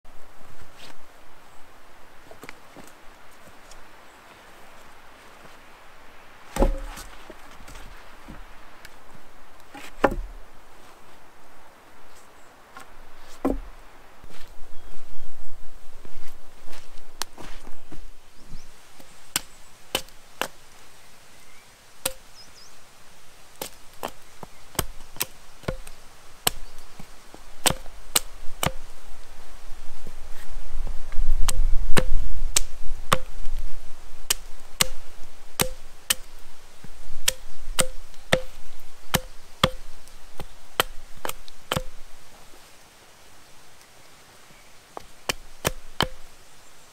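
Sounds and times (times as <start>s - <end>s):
axe chopping wood: 6.5s - 7.8s, 9.7s - 10.4s, 12.8s - 13.7s, 19.3s - 20.6s, 22.0s - 22.3s, 23.6s - 28.9s, 31.4s - 33.4s, 34.3s - 35.0s, 35.6s - 36.4s, 37.2s - 42.0s, 45.0s - 46.3s.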